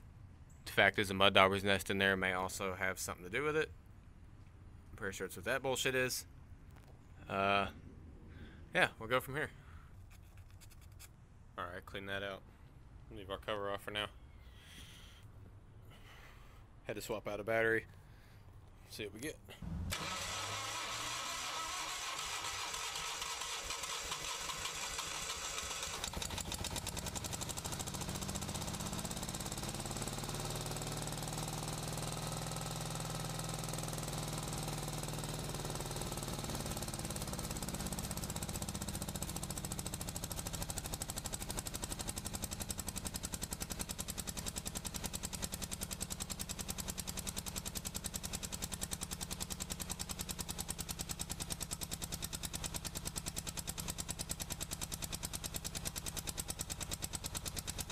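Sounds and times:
gas engine running roughly: 19.8s - 57.9s.

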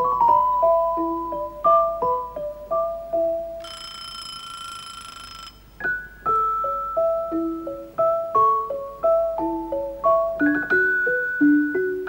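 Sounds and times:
bouncy keyboard melody: 0.0s - 3.7s, 5.6s - 12.0s
held ringing tone: 3.5s - 7.1s.

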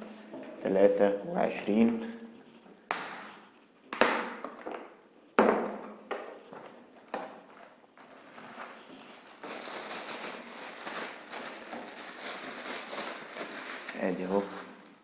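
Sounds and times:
plastic wrapping crinkling: 6.4s - 15.0s.

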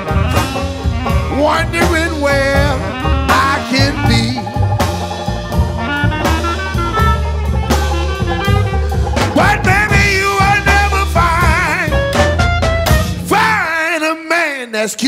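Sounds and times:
song with drums and bass beat: 0.0s - 13.7s
wavering melody line: 0.1s - 12.0s.

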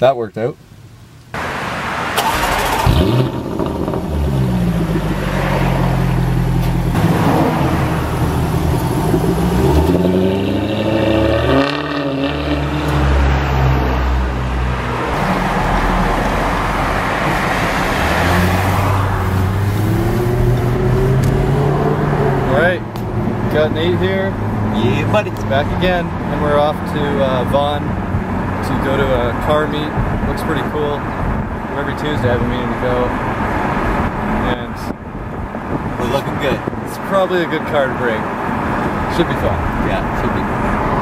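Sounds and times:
car engine revving and accelerating: 2.2s - 29.4s.

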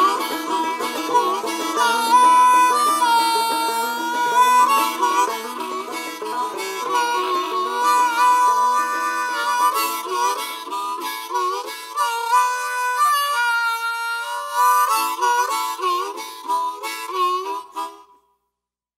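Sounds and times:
lead melody: 0.0s - 13.5s.

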